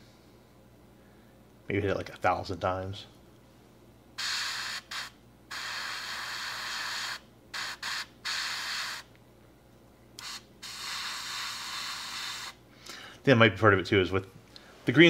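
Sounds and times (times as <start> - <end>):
airbrush spraying hiss: 4.2 - 9.1, 10.2 - 12.6.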